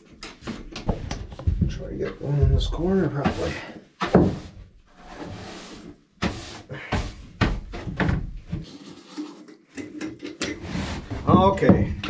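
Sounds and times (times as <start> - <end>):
broom sweeping wood shavings: 3.0 - 7.2.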